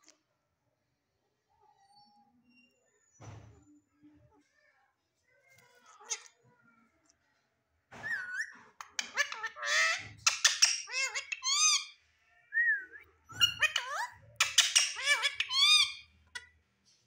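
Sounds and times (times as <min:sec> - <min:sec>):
parrot whistling and squawking: 0:08.0 - 0:12.0, 0:12.7 - 0:16.0.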